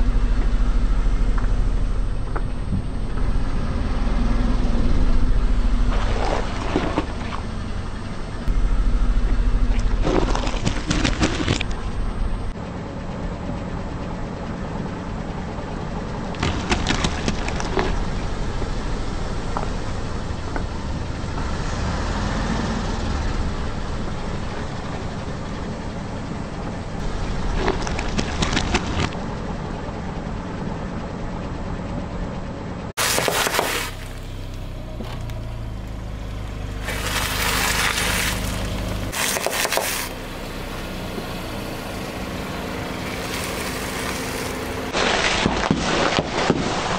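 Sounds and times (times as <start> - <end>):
car engine idling: 0.0 - 45.0
tyre crushing potatoes: 33.0 - 34.0, 36.8 - 40.1
snack packets crunching: 36.8 - 40.1.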